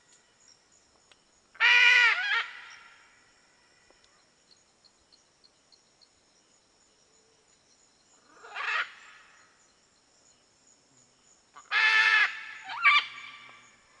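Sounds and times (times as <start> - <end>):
macaw squawking: 11.8 - 13.4.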